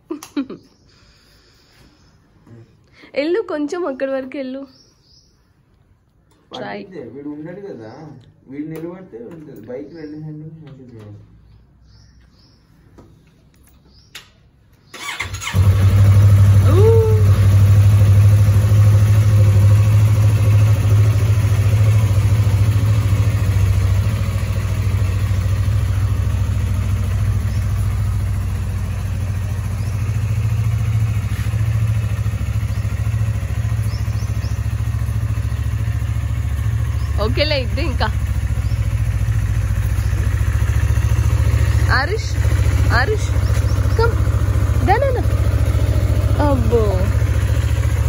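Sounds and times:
motorcycle engine starting and idling: 0:13.2 - 0:48.0.

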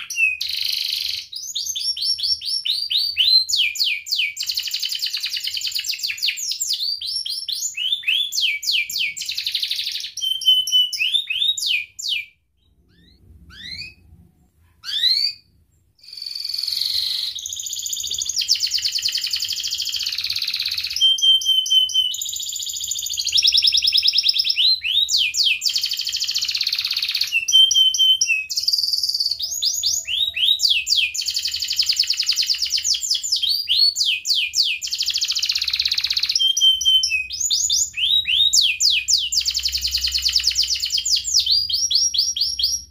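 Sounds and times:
canary singing: 0:00.0 - 0:42.9.

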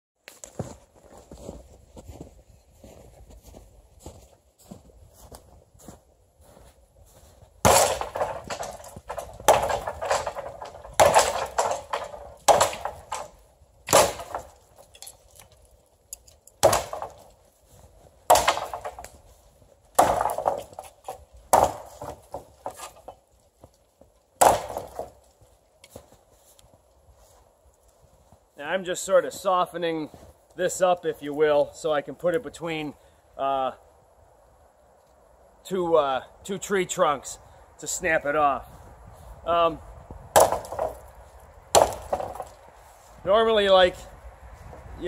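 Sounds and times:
axe chopping tree trunk: 0:07.6 - 0:15.5, 0:16.4 - 0:17.4, 0:18.2 - 0:19.2, 0:19.9 - 0:23.2, 0:24.4 - 0:25.4, 0:40.3 - 0:42.6.

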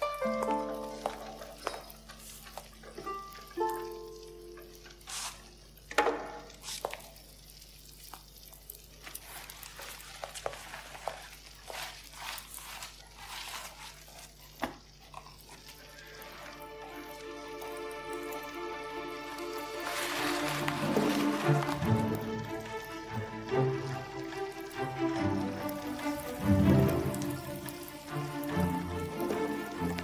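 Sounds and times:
crackling and rustling: 0:00.0 - 0:30.0.

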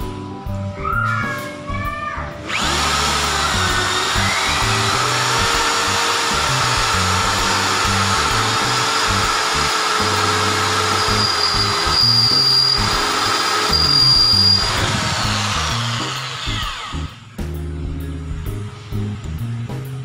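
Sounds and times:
background music: 0:00.0 - 0:20.0
drill bit boring into steel: 0:02.4 - 0:17.2
electric drill whining: 0:02.4 - 0:17.4.

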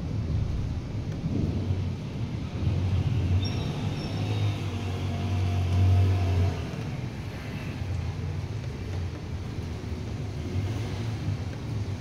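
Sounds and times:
distant thunder rumbling: 0:00.0 - 0:05.4.

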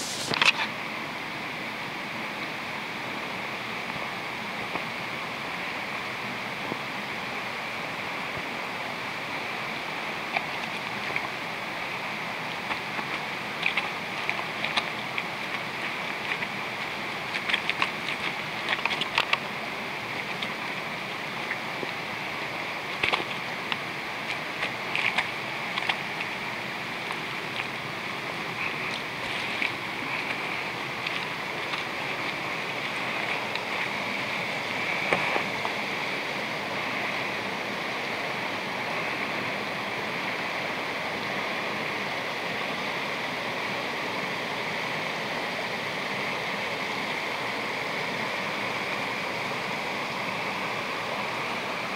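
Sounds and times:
stream rushing over stones: 0:00.0 - 0:51.9
sharp clicks and crackles: 0:12.5 - 0:19.5, 0:22.9 - 0:26.4.

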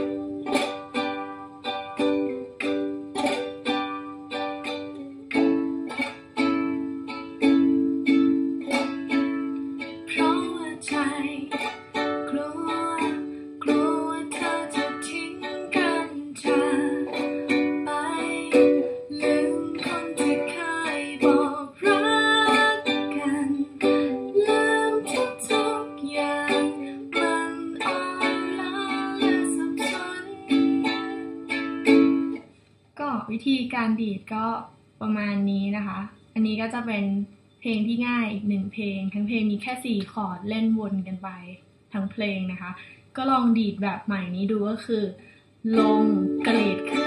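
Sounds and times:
person singing: 0:00.0 - 0:32.4, 0:45.7 - 0:47.0
ukulele strumming: 0:00.0 - 0:32.6, 0:45.7 - 0:47.0.

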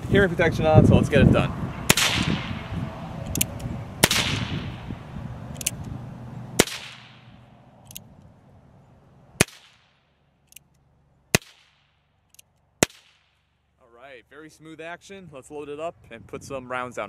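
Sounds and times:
revolver hammer cocking click: 0:03.3 - 0:04.5, 0:05.5 - 0:05.9.

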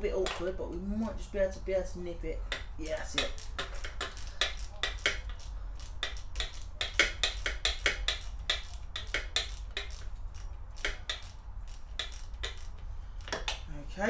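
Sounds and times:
socket ratchet clicking: 0:02.5 - 0:13.6.

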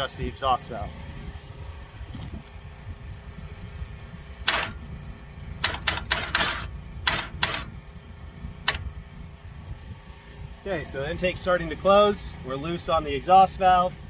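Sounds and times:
ratchet clicking: 0:04.4 - 0:04.8, 0:05.6 - 0:07.7.

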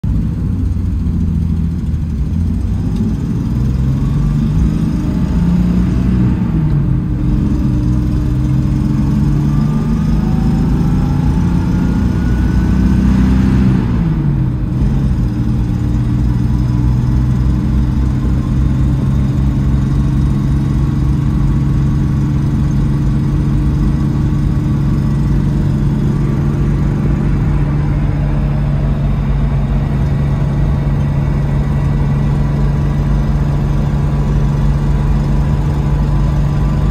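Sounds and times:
car engine accelerating: 0:00.0 - 0:36.9
faint engine whine: 0:00.0 - 0:36.9.

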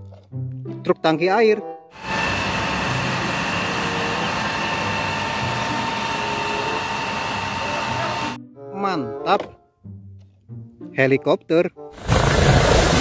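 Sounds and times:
water cannon spraying jet: 0:02.0 - 0:08.4, 0:12.0 - 0:13.0.

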